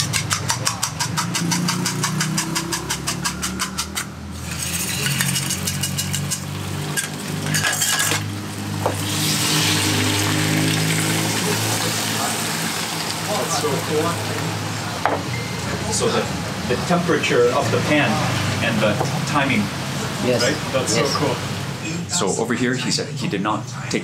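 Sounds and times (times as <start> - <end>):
fork beating eggs in a bowl: 0.0 - 8.1
egg sizzling in a wok: 4.4 - 13.4.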